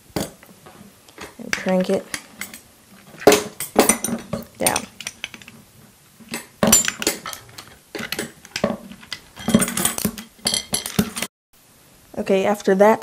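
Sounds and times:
wrench clinking on metal: 1.2 - 5.6, 6.3 - 11.3.

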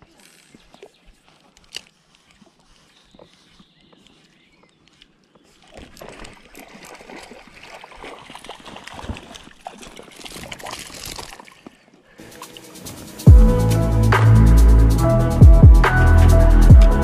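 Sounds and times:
fish splashing in water: 5.5 - 12.9.

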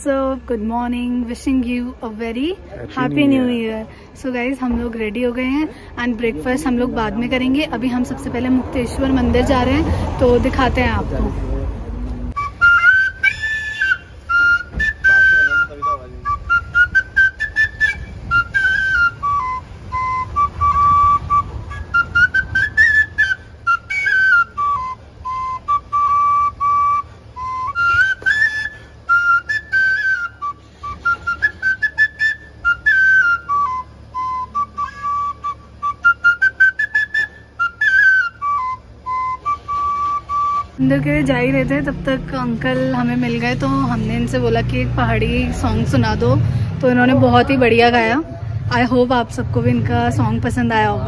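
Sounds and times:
flute playing folk tune: 1.0 - 8.2, 11.5 - 44.1.

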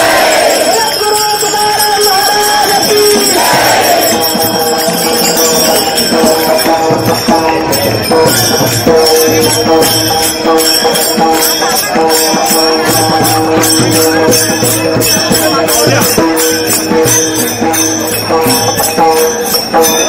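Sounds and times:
crowd chanting a devotional song: 0.0 - 1.0, 1.7 - 6.2
hand cymbals clashing: 0.0 - 20.0.

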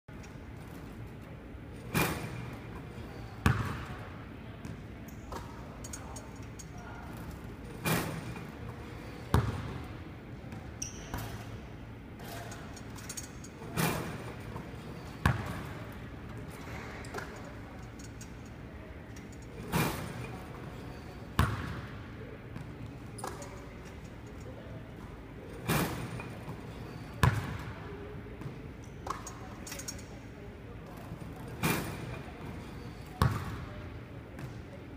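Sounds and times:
basketball hitting rim and net: 1.8 - 5.6, 7.7 - 9.9, 10.6 - 11.5, 12.2 - 17.4, 19.6 - 22.0, 25.5 - 27.8, 30.9 - 33.7.

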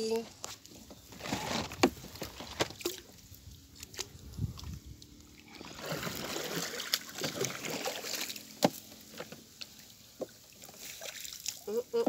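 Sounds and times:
paddle splashing in water: 5.4 - 11.7.

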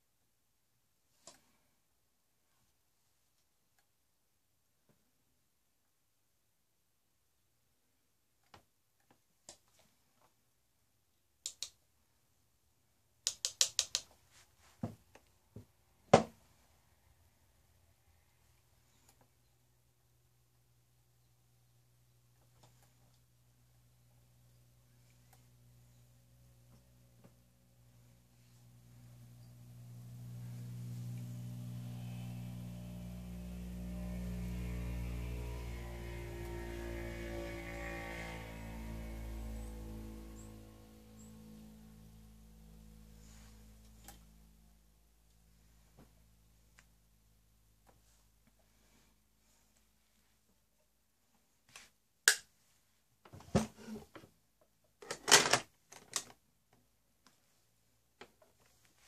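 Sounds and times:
sharp click: 11.4 - 11.8, 13.3 - 14.1
low hum of held pitches: 23.4 - 47.8.

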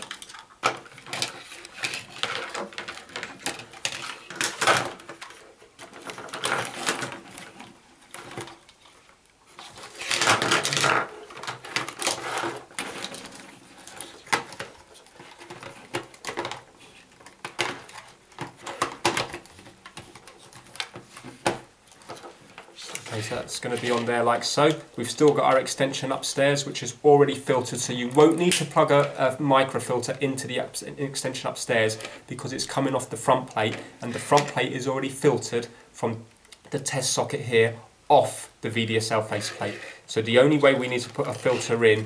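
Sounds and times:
plastic parts clicking: 0.0 - 8.8, 10.0 - 25.4
cables rubbing: 39.1 - 42.0.

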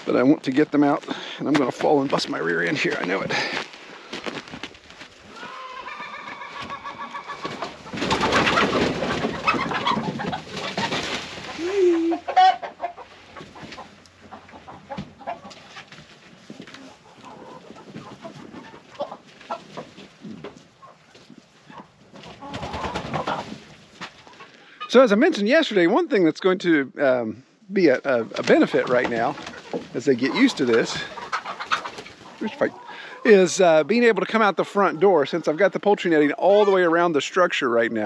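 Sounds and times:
chickens clucking: 4.9 - 25.9, 27.9 - 37.2.

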